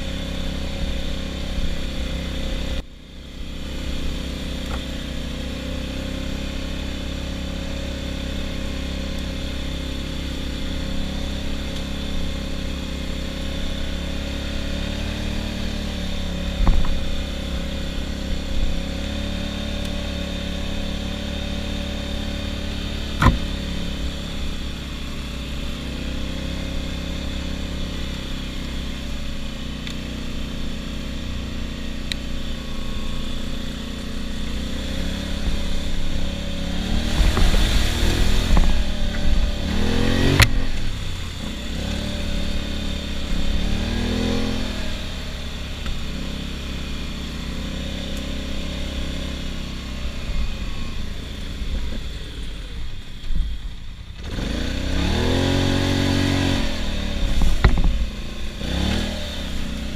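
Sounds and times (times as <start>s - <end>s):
atv engine running: 0.0s - 59.9s
sharp knocks: 23.2s - 23.5s.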